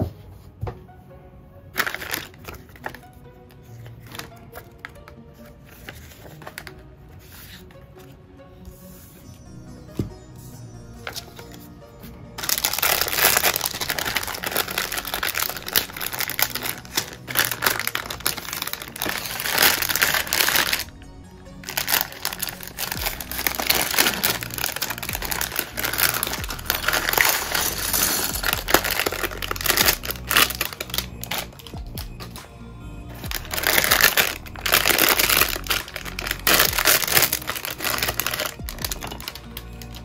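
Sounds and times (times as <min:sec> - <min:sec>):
lofi hip-hop music: 0:00.0 - 0:40.0
plastic bags crinkling: 0:01.8 - 0:03.0, 0:12.4 - 0:20.9, 0:21.6 - 0:31.9, 0:33.2 - 0:40.0.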